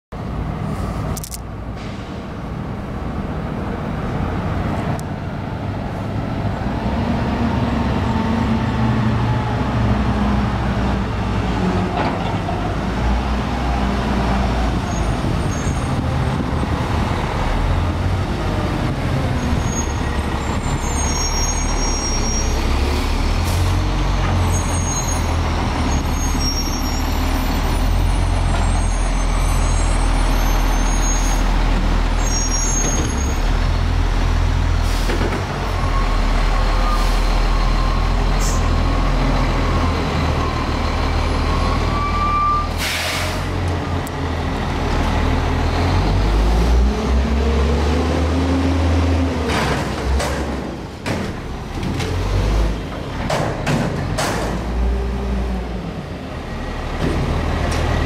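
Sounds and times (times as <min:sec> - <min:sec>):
garbage truck diesel engine: 0:00.2 - 0:58.0
brakes squealing: 0:14.7 - 0:16.1, 0:19.3 - 0:33.6, 0:34.8 - 0:44.4.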